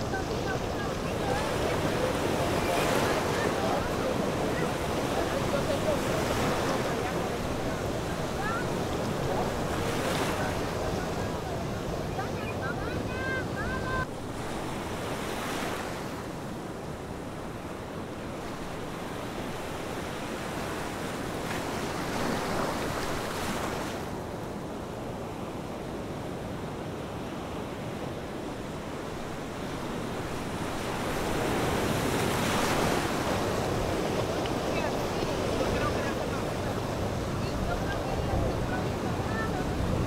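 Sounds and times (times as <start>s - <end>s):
choppy sea water rushing: 0.0s - 40.0s
wind buffeting microphone: 29.2s - 40.0s.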